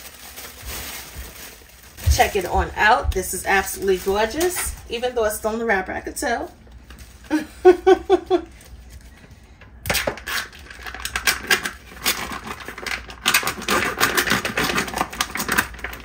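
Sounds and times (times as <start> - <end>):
plastic wrapper crinkling: 0.0 - 9.3, 9.9 - 16.0.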